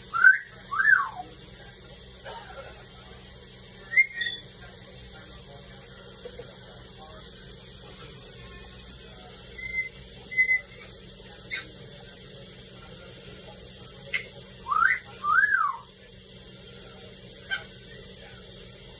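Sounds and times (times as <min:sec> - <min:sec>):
parrot whistling: 0:00.1 - 0:01.2, 0:03.8 - 0:04.5, 0:09.5 - 0:10.9, 0:11.5 - 0:11.7, 0:14.1 - 0:15.9
parrot chirps: 0:03.9 - 0:04.5, 0:09.6 - 0:11.7, 0:14.1 - 0:15.9.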